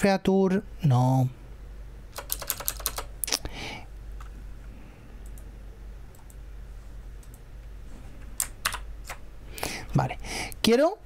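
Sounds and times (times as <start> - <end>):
low steady hum: 0.0 - 11.0
computer mouse clicks: 5.2 - 5.5, 6.1 - 6.4, 7.2 - 7.4.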